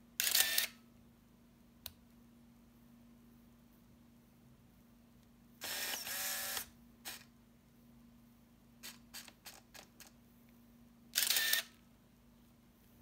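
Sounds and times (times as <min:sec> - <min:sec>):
film advance motor whirring: 0:05.6 - 0:07.2, 0:11.2 - 0:11.7
camera shutter firing: 0:11.2 - 0:11.7.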